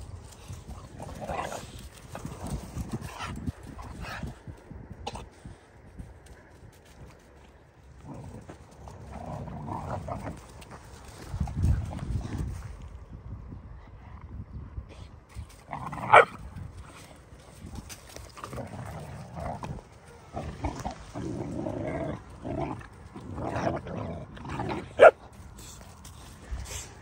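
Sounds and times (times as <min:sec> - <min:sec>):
puppies growling: 0:00.5 - 0:04.5, 0:07.8 - 0:12.5, 0:15.5 - 0:26.3.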